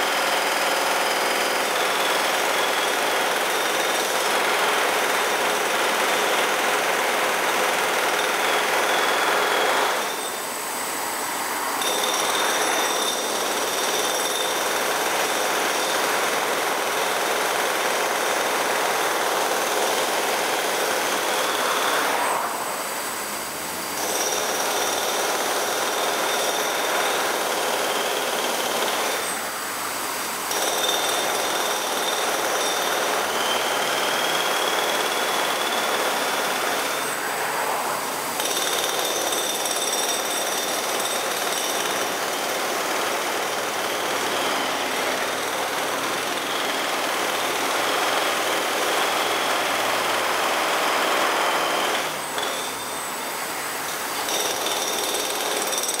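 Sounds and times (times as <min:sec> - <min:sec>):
jackhammer clatter: 0:00.0 - 0:10.4, 0:11.8 - 0:22.0, 0:24.0 - 0:29.4, 0:30.5 - 0:37.1, 0:38.3 - 0:53.0, 0:53.9 - 0:56.0.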